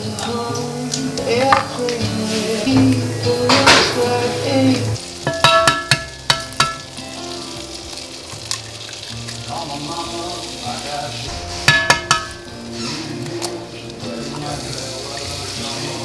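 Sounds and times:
food sizzling in frying pan: 0.0s - 16.0s.

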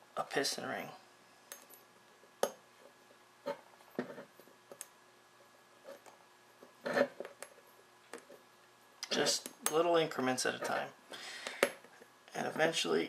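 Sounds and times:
faint metal clicks and scraping: 5.8s - 12.1s.

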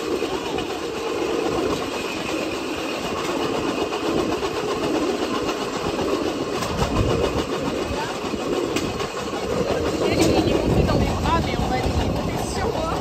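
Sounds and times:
steel wheels rattling on rails: 0.0s - 13.0s.

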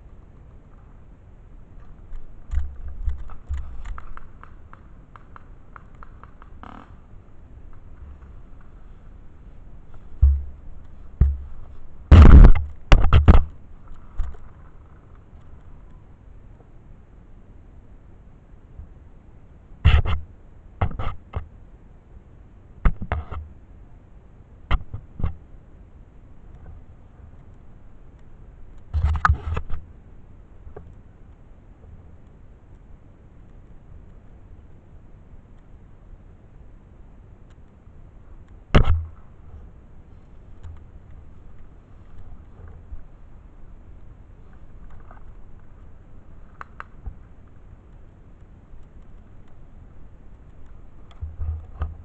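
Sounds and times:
camera jostling bumps: 10.0s - 13.5s
sharp knocks: 10.2s - 10.6s, 11.2s - 13.5s, 38.8s - 39.1s.

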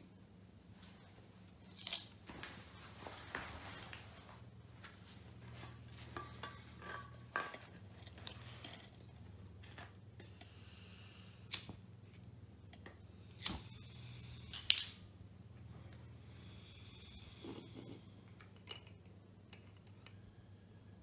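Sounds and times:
lighter clicking: 11.2s - 11.8s.

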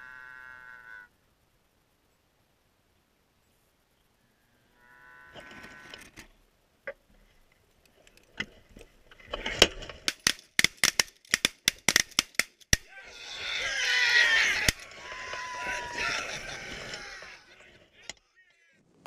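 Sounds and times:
geese calling: 0.0s - 1.1s, 12.8s - 18.7s.

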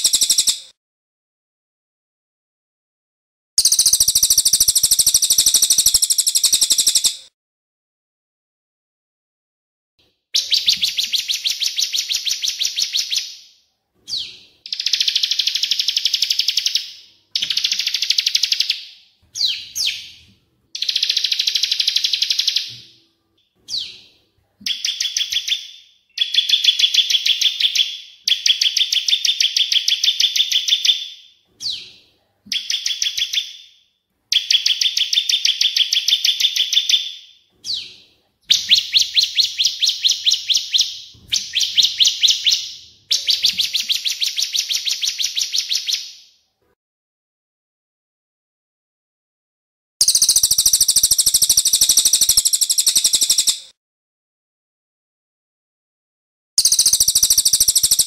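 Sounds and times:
sweeping bird calls: 0.0s - 0.7s, 14.1s - 22.8s, 23.6s - 46.2s, 50.0s - 53.7s, 56.6s - 58.0s.

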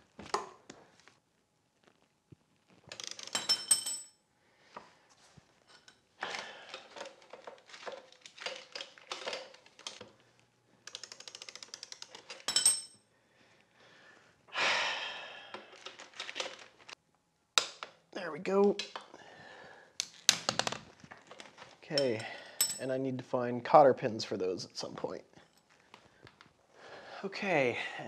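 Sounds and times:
wrench clinking on concrete: 2.9s - 4.2s, 10.9s - 13.0s, 21.9s - 22.9s
ratchet clicking: 10.9s - 12.3s.

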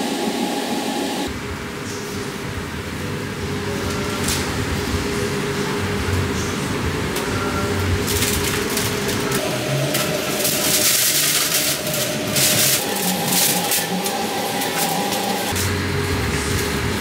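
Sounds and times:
steady background hum: 0.0s - 17.0s
paper bags rustling and crinkling: 7.9s - 17.0s.

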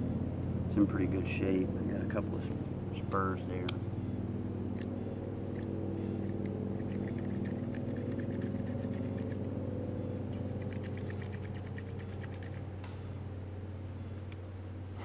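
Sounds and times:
low engine drone: 0.0s - 15.0s
knife scraping a twig: 5.5s - 9.6s, 10.3s - 13.0s.

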